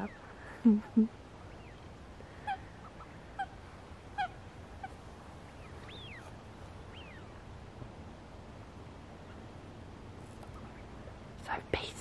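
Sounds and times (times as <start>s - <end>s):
faint waterbird calls: 0.0s - 7.6s, 9.0s - 9.6s, 10.4s - 11.2s.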